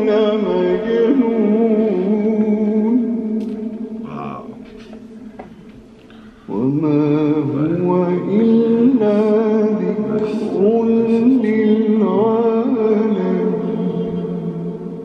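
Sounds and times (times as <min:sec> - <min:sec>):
man chanting: 0:00.0 - 0:04.8, 0:06.5 - 0:15.0
steady drone tone: 0:06.5 - 0:15.0.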